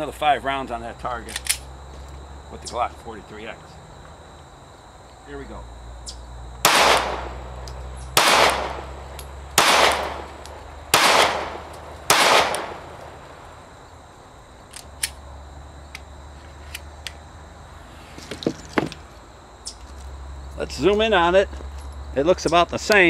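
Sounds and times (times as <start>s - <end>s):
pistol shots with ringing tail: 6.6s - 13.2s.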